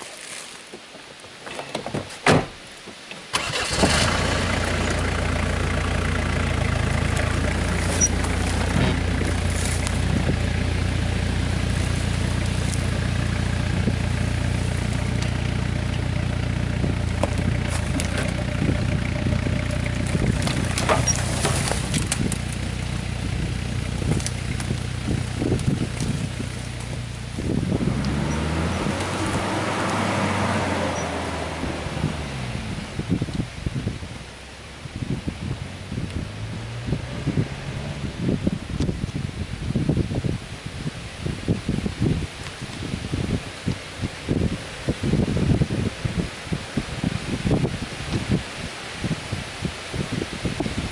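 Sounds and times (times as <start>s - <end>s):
car engine starting and idling: 3.2s - 40.4s.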